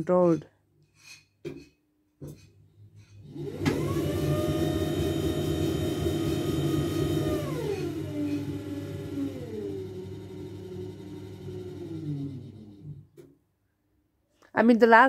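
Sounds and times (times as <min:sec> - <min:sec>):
pottery wheel motor whine: 0:03.0 - 0:13.2.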